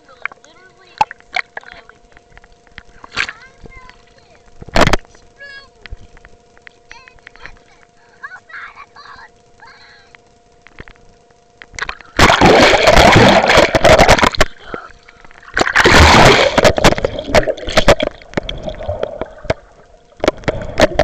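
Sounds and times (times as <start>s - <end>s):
dripping and bubbling water: 10.6s - 21.0s
water splashing against camera: 10.6s - 21.0s.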